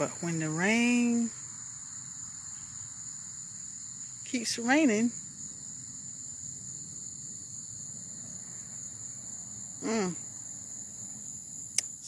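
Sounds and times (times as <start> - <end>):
insects chirring: 0.0 - 12.0
woman humming: 9.8 - 10.2.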